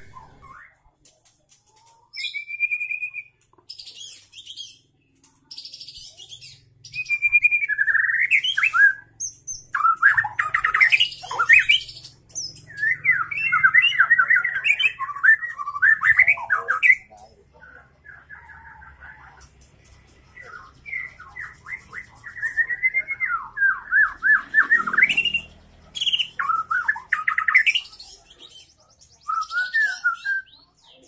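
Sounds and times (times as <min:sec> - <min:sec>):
bird singing whistled song: 0:02.1 - 0:04.9, 0:05.5 - 0:17.1, 0:20.4 - 0:31.0.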